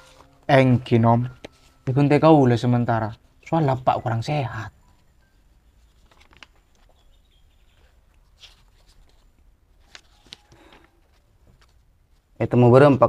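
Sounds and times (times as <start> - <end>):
paper rustling: 0.0 - 0.4, 5.8 - 12.3.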